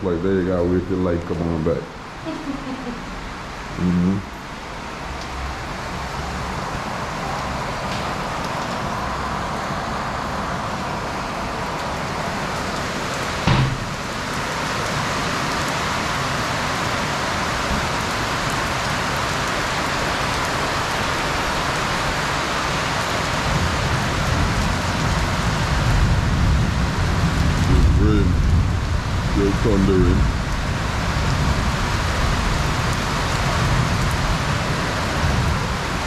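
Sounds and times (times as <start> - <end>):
heavy rain pouring: 0.0 - 36.0
sharp thump: 13.4 - 14.0.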